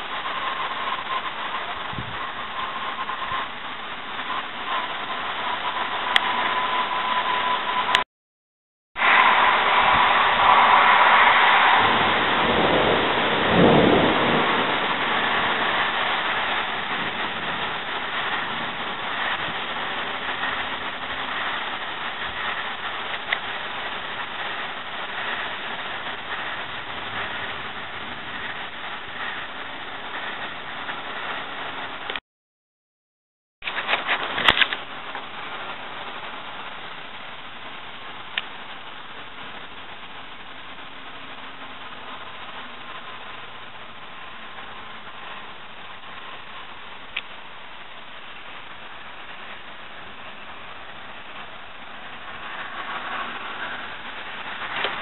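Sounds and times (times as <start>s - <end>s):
wind rushing: 9.0s - 32.1s
low rumble: 9.0s - 32.2s.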